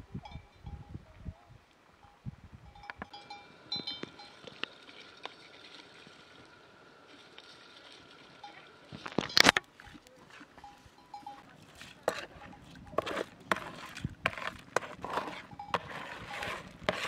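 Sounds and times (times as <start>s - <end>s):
livestock bells clinking: 0.2s - 1.0s, 2.0s - 4.8s, 8.3s - 13.1s, 15.5s - 16.0s.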